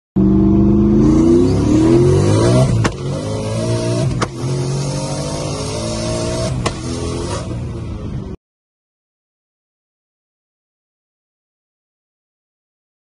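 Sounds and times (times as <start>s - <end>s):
car engine accelerating: 0.2s - 8.4s
sharp pop at upshift: 2.7s - 3.2s, 4.1s - 4.4s, 6.6s - 7.0s.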